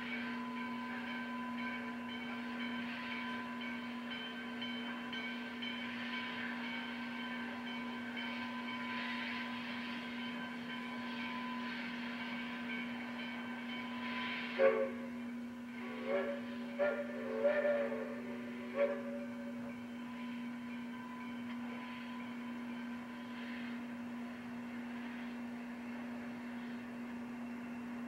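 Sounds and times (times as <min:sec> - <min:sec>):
steam locomotive hissing: 0:00.0 - 0:28.0.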